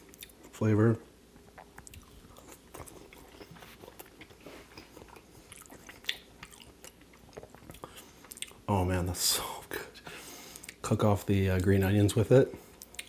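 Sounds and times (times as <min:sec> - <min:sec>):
close-miked chewing: 0:01.4 - 0:08.7, 0:12.6 - 0:13.0.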